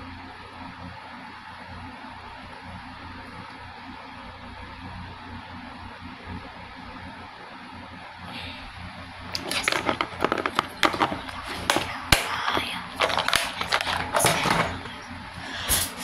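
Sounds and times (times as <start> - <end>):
small objects clicking and rattling: 9.4 - 14.8.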